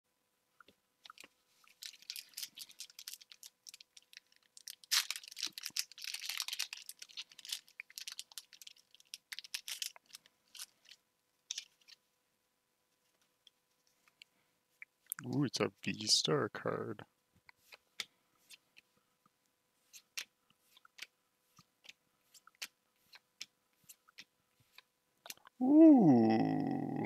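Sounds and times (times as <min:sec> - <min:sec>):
foil wrapper crinkling and tearing: 0:01.1 - 0:12.0.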